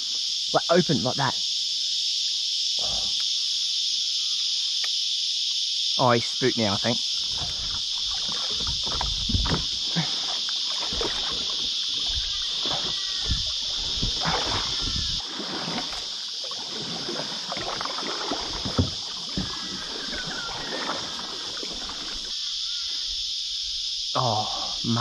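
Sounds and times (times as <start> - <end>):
cicadas droning: 0.0 - 25.0
paddle splashing in water: 7.2 - 22.4
paddle knocks: 7.3 - 22.2.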